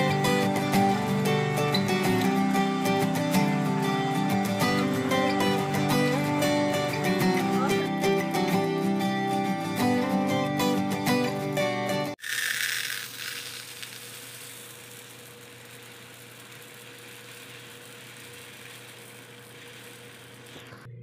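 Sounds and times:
granular hiss of tapioca pearls: 12.2s - 20.9s.

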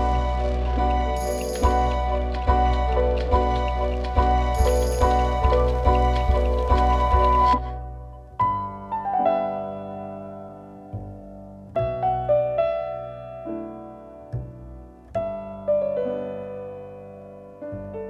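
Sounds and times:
slow piano notes: 0.0s - 18.0s.

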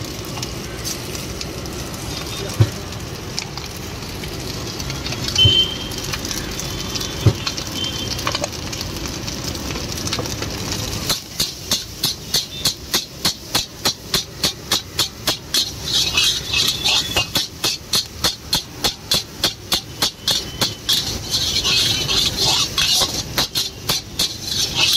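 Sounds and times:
gas flame hissing: 0.0s - 24.9s
rice sizzling: 0.0s - 24.9s
metal ladle clanking on wok: 11.1s - 24.9s.

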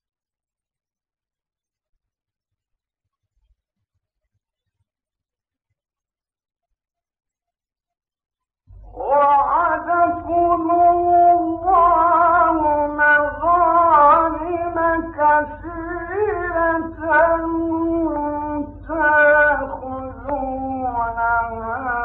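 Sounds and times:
low hum: 8.7s - 22.0s
man reciting melodically: 8.8s - 22.0s.

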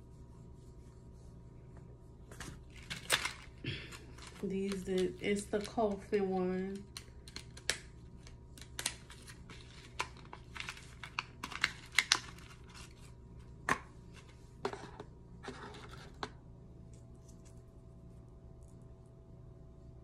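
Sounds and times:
packaging rustling and tearing: 2.6s - 6.1s, 6.8s - 13.1s.

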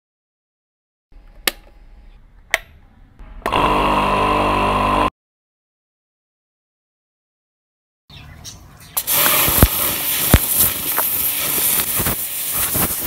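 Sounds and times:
rocker switch clicks: 1.4s - 1.8s, 2.5s - 2.8s
pressure washer motor buzzing: 3.4s - 5.1s, 9.0s - 13.0s.

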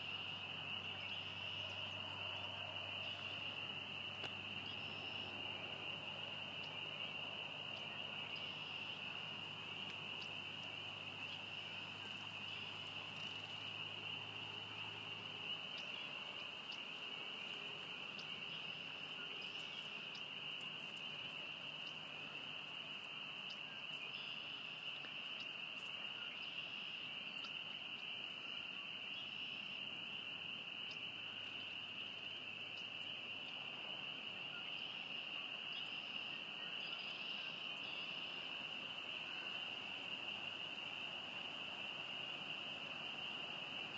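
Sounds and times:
frogs calling: 0.0s - 43.9s.

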